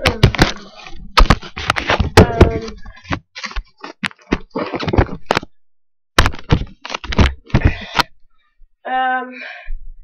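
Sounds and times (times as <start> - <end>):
camera handling knocks and rustles: 0.1 - 5.5, 6.2 - 8.1.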